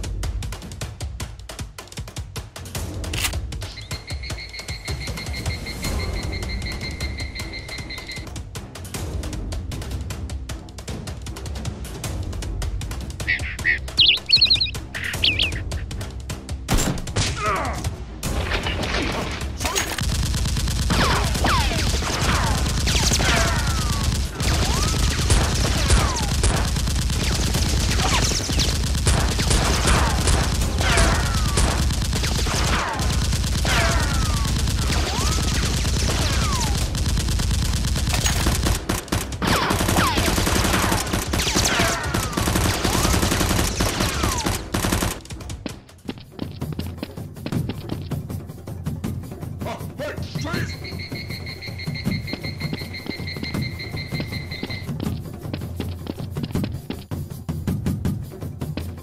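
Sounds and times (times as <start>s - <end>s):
background music beat: 0.0s - 18.2s, 20.0s - 59.0s
automatic gunfire bursts: 20.0s - 45.2s.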